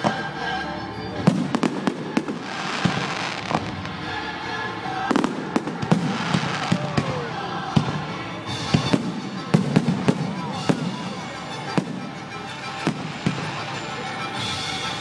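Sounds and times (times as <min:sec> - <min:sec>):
firework bangs: 0:01.2 - 0:04.0, 0:05.1 - 0:07.2
firework crackling: 0:01.2 - 0:04.3, 0:05.0 - 0:14.9.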